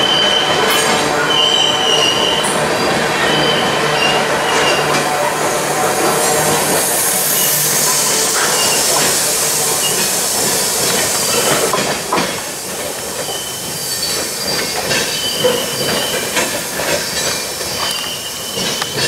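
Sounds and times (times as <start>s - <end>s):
train wheels clicking over track: 0.2s - 19.0s
loud rushing hiss: 0.5s - 18.6s
wheels squealing: 1.2s - 5.1s, 7.2s - 11.7s, 13.2s - 19.0s.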